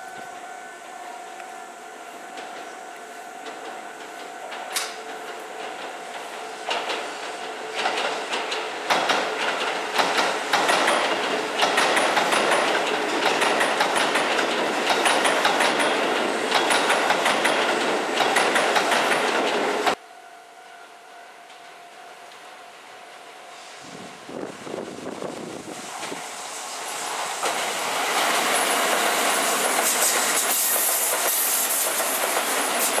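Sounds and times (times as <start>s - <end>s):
electric train passing: 0.0s - 33.0s
train wheels clattering: 2.2s - 20.0s, 25.7s - 33.0s.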